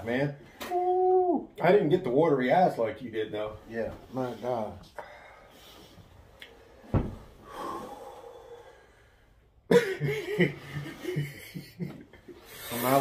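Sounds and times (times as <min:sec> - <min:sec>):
man talking: 0:00.0 - 0:05.0, 0:12.6 - 0:13.0
short thump: 0:06.8 - 0:07.3
man breathing out hard: 0:07.4 - 0:09.4.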